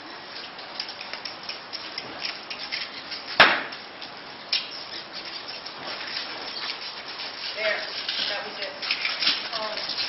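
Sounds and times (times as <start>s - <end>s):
cow hooves on wet concrete: 0.0s - 10.0s
sharp knock: 3.4s - 3.7s.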